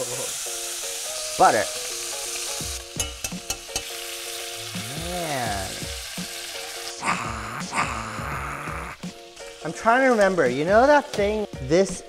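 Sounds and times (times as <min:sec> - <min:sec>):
steaks sizzling in a pan: 0:00.0 - 0:12.0
metal utensils clicking on pan: 0:03.0 - 0:04.1.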